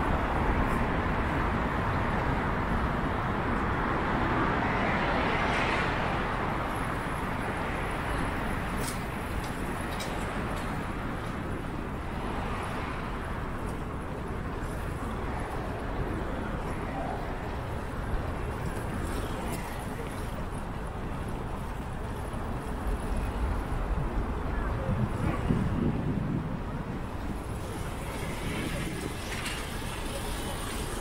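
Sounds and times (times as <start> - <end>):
traffic hum: 0.0 - 31.0
bicycle tyre noise: 27.1 - 31.0.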